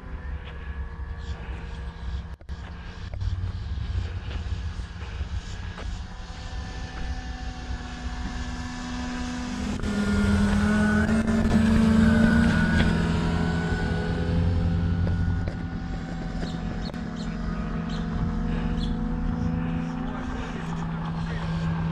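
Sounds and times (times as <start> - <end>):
low rumble: 0.0 - 6.8
model airplane motors humming: 0.0 - 21.9.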